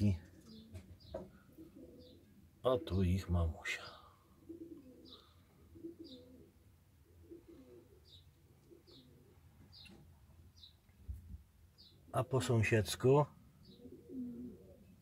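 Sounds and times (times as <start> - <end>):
small bird chirping: 0.3 - 2.4, 4.6 - 6.5, 7.2 - 12.2, 13.6 - 15.0
dove cooing: 0.3 - 3.1, 3.8 - 10.1, 13.6 - 15.0.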